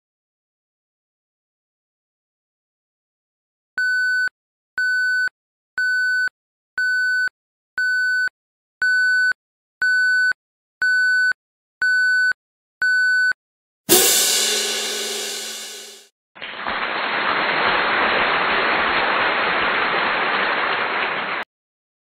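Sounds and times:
cymbal crash: 13.9s - 16.0s.

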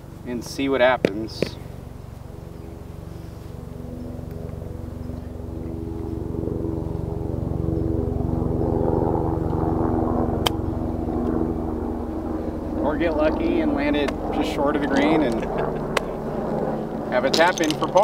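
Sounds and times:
engine drone: 0.0s - 18.0s
golf club striking ball: 10.4s - 10.7s.

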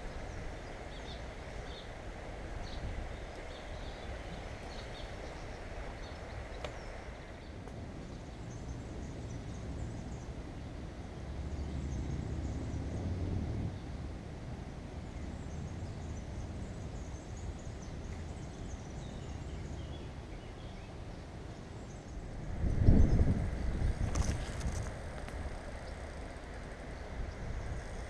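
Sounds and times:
small birds chirping: 0.0s - 2.0s, 2.6s - 13.0s, 15.1s - 28.0s
river water flowing: 0.0s - 28.0s.

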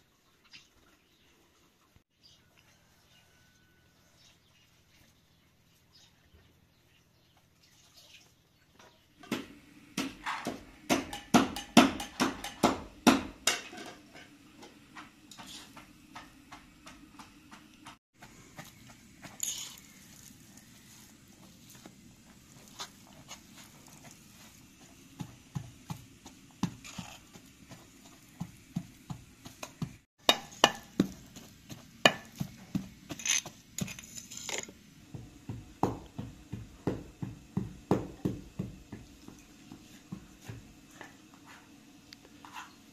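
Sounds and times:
utensils and dishes knocking: 10.0s - 14.4s, 30.2s - 31.2s.

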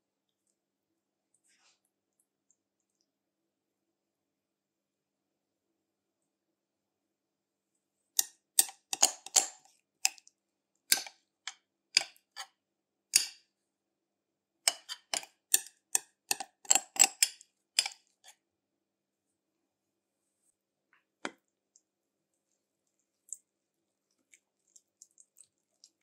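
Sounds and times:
metal spoon tapping a mixing bowl: 8.6s - 9.5s, 10.9s - 11.1s, 13.2s - 13.4s, 14.7s - 18.0s.

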